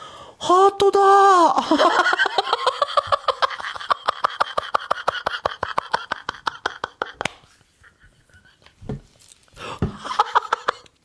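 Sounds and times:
man laughing hard: 1.6s - 8.8s, 9.8s - 10.9s.

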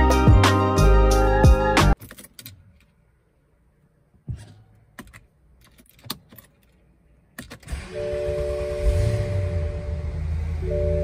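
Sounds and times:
clicks and rattles of handling: 4.9s - 7.6s
car engine starting: 7.4s - 11.0s.

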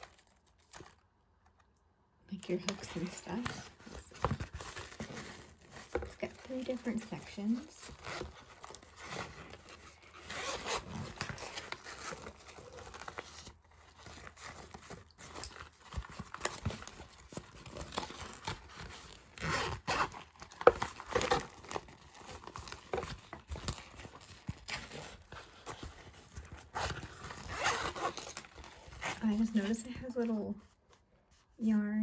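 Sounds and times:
fabric pencil case crinkling: 0.0s - 1.6s, 2.3s - 31.6s.

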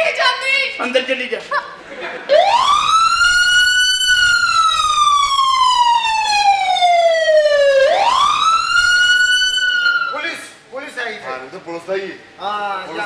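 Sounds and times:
wailing siren: 2.3s - 10.2s.

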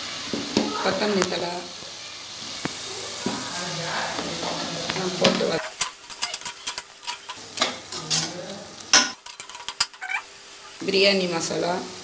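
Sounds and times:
vegetables sizzling in oil: 0.0s - 12.0s
skimmer scraping a pot: 5.4s - 8.4s, 9.2s - 10.2s.

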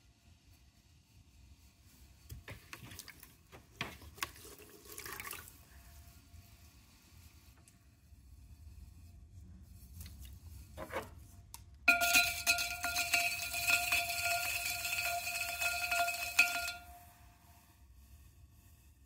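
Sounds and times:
clay scraping on pottery wheel: 5.4s - 19.0s.

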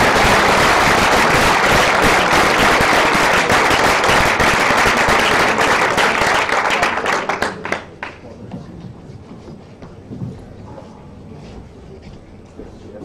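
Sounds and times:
audience applause: 0.0s - 8.2s.

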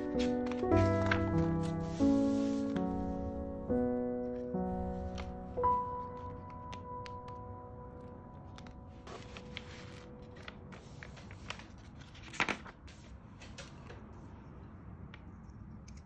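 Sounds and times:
paper and plastic sleeve rustling: 0.0s - 2.9s, 8.6s - 13.9s.

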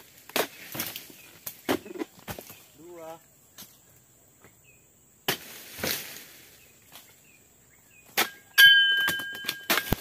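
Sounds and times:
metallic ring: 8.6s - 10.0s.

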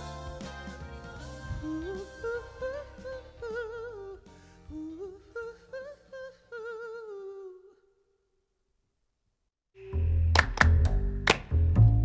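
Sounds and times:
musical accompaniment: 0.0s - 5.6s, 9.8s - 12.0s
man singing a ballad: 0.0s - 7.8s.

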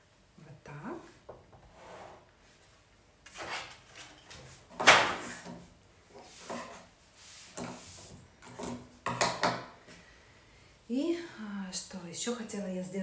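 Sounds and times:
cloth wiping a tabletop: 6.2s - 8.2s.

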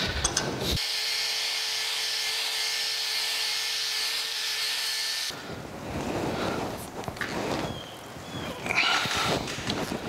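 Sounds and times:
wire wheel grinder on metal: 0.0s - 5.4s.

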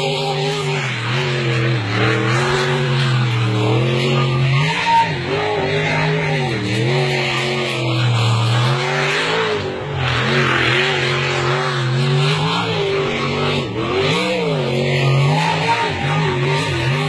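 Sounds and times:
racing boat engine: 0.0s - 17.0s.

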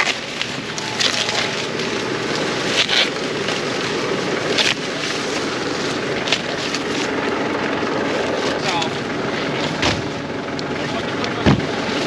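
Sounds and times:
corn ears snapping off: 0.0s - 5.1s
corn husks rustling: 0.0s - 11.1s.

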